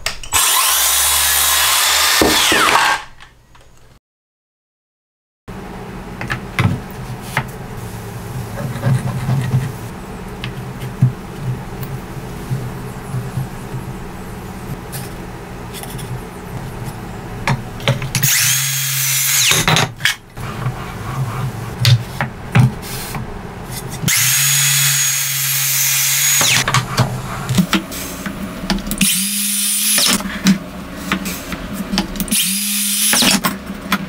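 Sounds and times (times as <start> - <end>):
circular saw motor whining: 0.3 - 3.1, 18.2 - 19.7, 24.1 - 26.7, 29.0 - 30.2, 32.3 - 33.4.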